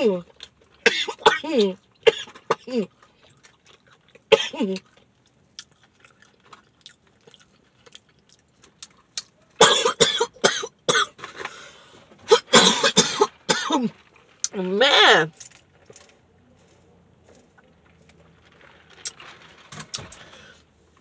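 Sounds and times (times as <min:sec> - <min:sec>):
woman coughing: 0:00.9 - 0:02.9, 0:04.3 - 0:04.8, 0:09.6 - 0:11.2, 0:12.3 - 0:13.9.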